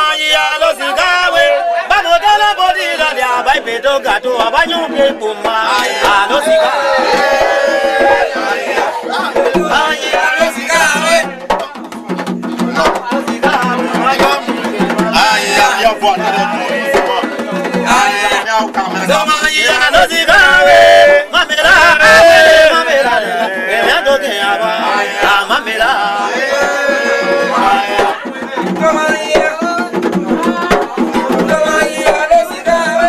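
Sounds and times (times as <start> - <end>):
drums and percussion: 0.0 - 33.0
voices singing: 0.0 - 33.0.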